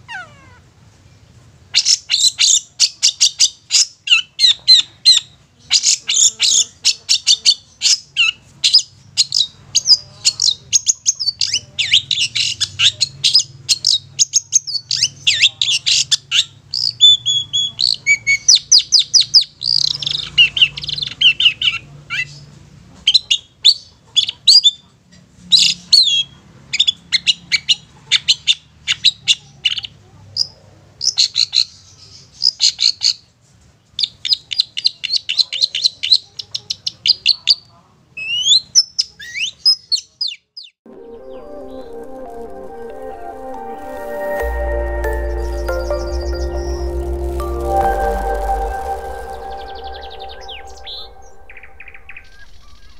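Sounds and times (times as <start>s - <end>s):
shrike singing: 40.9s - 52.9s.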